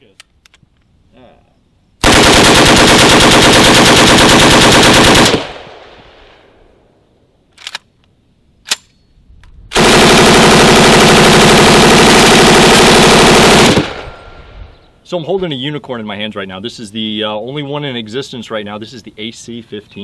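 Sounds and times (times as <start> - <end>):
machine gun firing continuously: 2.0 - 5.6, 9.8 - 14.0
rifle firing full-auto burst: 2.0 - 5.8, 9.7 - 14.2.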